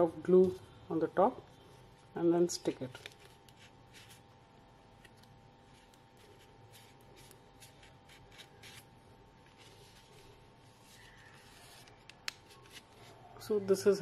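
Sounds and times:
card paper rustling: 0:05.0 - 0:13.3.

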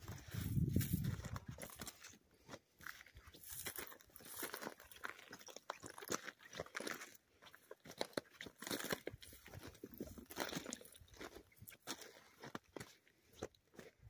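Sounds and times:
footsteps crunching on gravel: 0:00.0 - 0:14.0.

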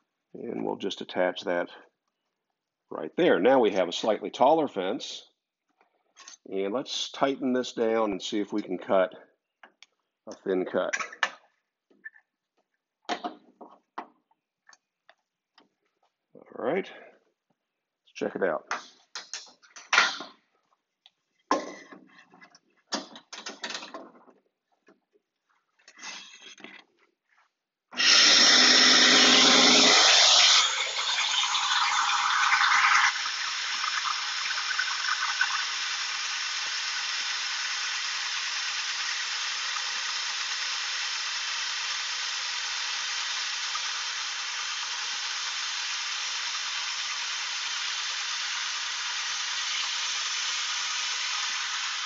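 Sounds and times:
bandsaw cutting wood: 0:28.0 - 0:31.6.

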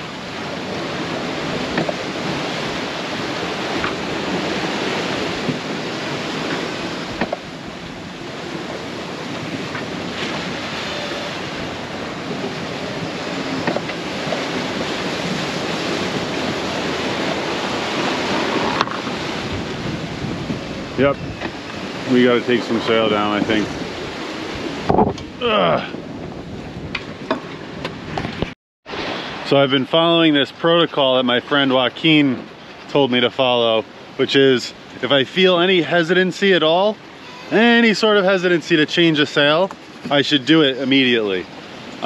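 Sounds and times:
wind buffeting microphone: 0:00.0 - 0:29.4
wind rushing: 0:00.0 - 0:29.5
sea waves breaking: 0:00.0 - 0:42.0.

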